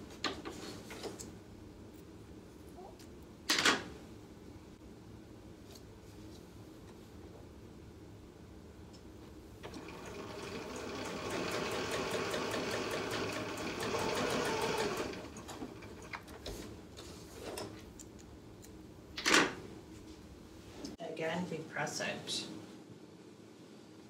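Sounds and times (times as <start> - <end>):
sewing machine stitching: 9.6 - 16.2.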